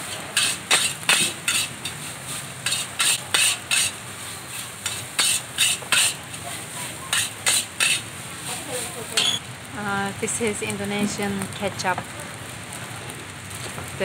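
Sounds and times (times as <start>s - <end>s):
metal spatula scraping a wok: 0.0s - 9.4s
rice sizzling in hot oil: 0.0s - 14.0s.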